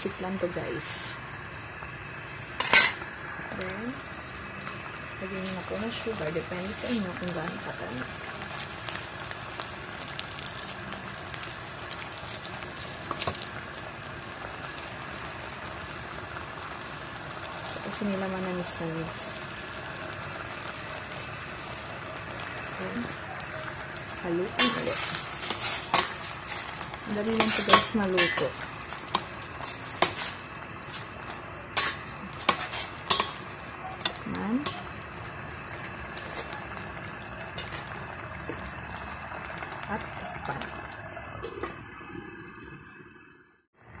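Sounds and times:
pot of sauce simmering: 0.0 - 44.0
metal ladle scraping pot: 24.6 - 31.1, 31.8 - 34.8.

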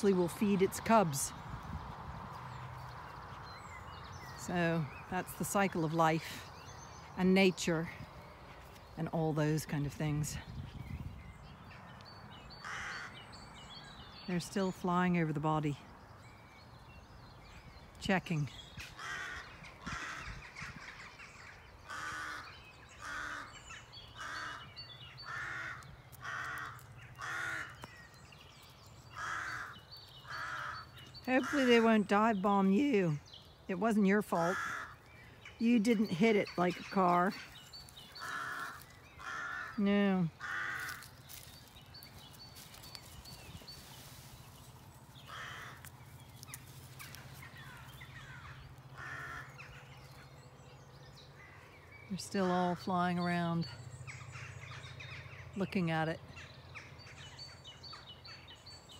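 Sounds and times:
crows cawing: 12.6 - 13.3, 18.8 - 28.0, 29.1 - 31.9, 34.4 - 35.6, 37.3 - 39.8, 40.4 - 41.5, 45.2 - 50.2.

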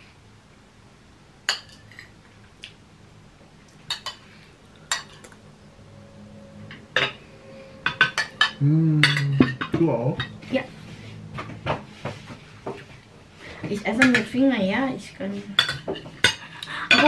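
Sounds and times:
cutlery clinking on plates: 4.9 - 5.4, 15.6 - 17.0.

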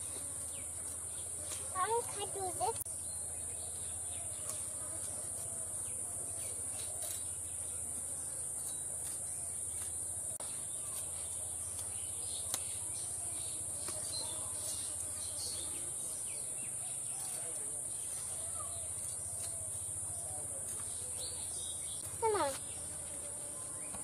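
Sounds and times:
insects droning: 0.0 - 24.0
clicks and scrapes of fish cutting: 6.8 - 7.2.

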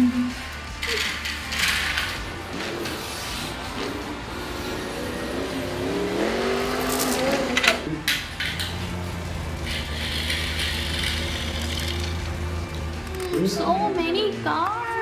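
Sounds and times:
race car engine: 0.0 - 14.4.

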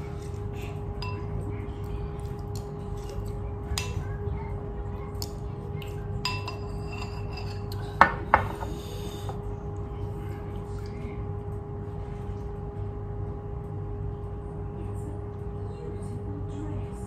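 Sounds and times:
low electrical hum: 0.0 - 17.0
cutlery clinking against bowl: 1.0 - 1.3, 5.2 - 8.8.

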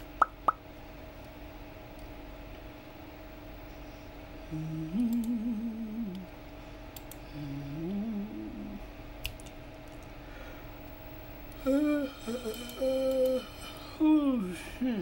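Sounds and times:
faint steady hum: 0.0 - 15.0
woman humming a tune: 4.5 - 6.3, 7.3 - 8.8, 11.6 - 15.0
computer mouse clicks: 7.0 - 7.2.

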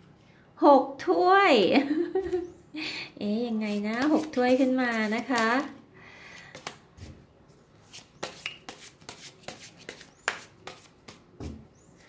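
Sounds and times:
cards being shuffled: 3.7 - 5.7, 7.8 - 11.2.

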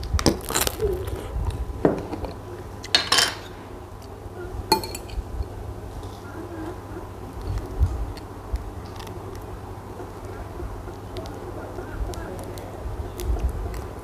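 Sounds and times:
bread roll bitten: 0.1 - 1.6
metal spoon clinking on jar: 4.7 - 5.2.

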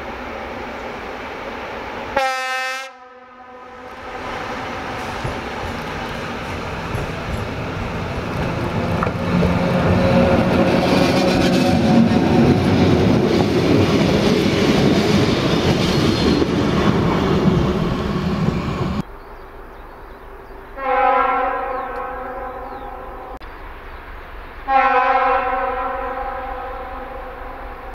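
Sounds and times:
locomotive horn blast: 2.1 - 5.2, 20.8 - 23.4, 24.7 - 27.9
train wheels rolling on rails: 3.9 - 19.1.

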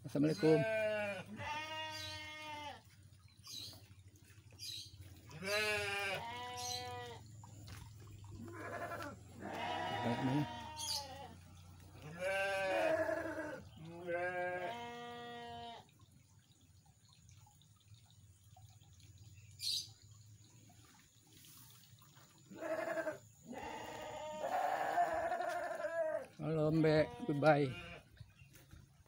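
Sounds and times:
goats bleating: 0.3 - 2.8, 5.3 - 7.2, 8.4 - 11.4, 12.0 - 15.8, 22.5 - 28.1.

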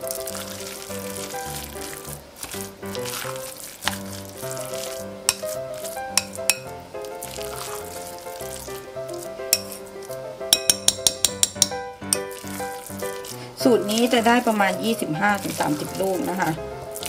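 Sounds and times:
soft background music: 0.0 - 17.0
wet stirring and slapping: 0.0 - 17.0
utensil knocking glass bowl: 6.2 - 6.7, 10.5 - 12.2.

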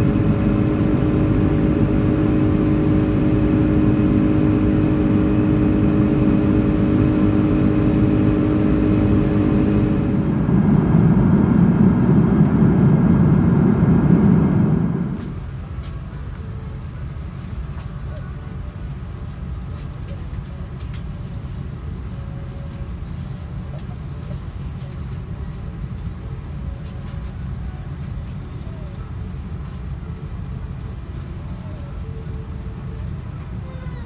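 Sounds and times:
cabin hum: 0.0 - 16.6
airplane engine drone: 0.0 - 34.0.

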